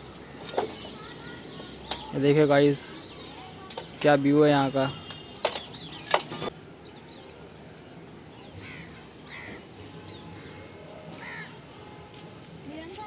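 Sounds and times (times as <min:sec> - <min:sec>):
faint outdoor background noise: 0:00.0 - 0:13.0
crow cawing: 0:08.6 - 0:09.6, 0:11.2 - 0:11.6.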